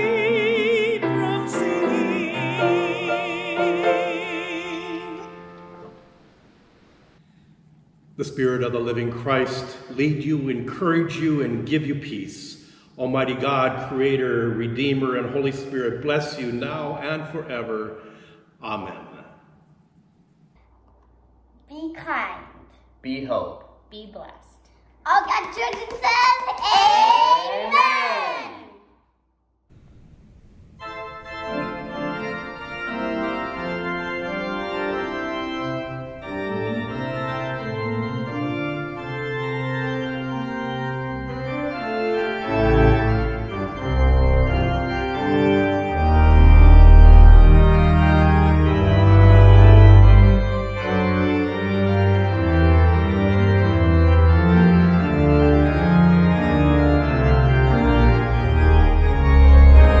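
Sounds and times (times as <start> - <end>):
church organ chords: 0.0 - 7.0, 29.8 - 60.0
deep organ pedal bass notes: 29.8 - 60.0.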